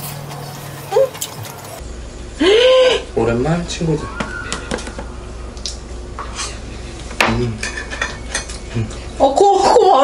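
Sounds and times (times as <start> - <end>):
cutlery clinking on dishes: 7.2 - 8.6.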